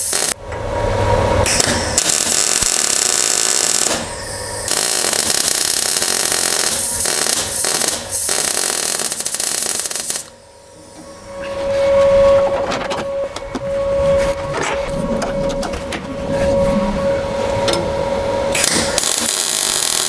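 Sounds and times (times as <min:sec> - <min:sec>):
welder arc crackling: 0:00.0 - 0:00.4, 0:01.5 - 0:10.4, 0:18.6 - 0:20.0.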